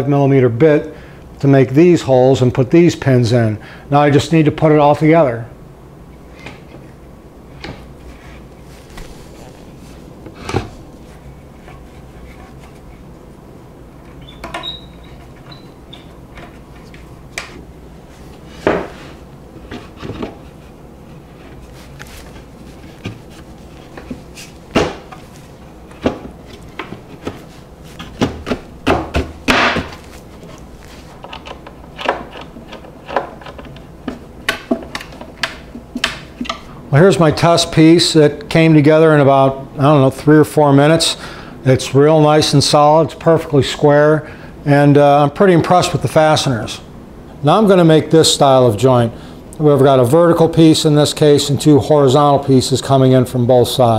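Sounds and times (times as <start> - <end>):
wooden panels knocking and clicking: 28.0 - 30.1, 31.2 - 36.7.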